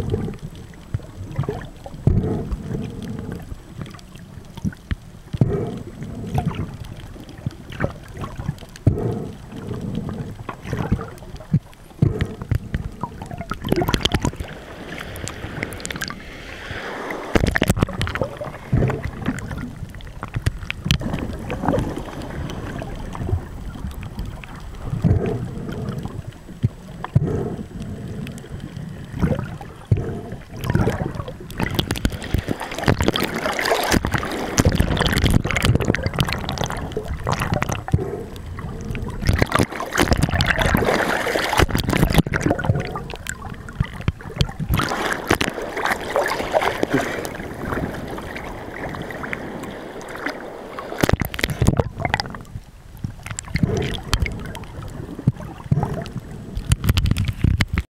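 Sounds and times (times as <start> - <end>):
water gurgling and sloshing: 0.0 - 57.9
small splashes: 29.1 - 38.0, 39.1 - 52.4.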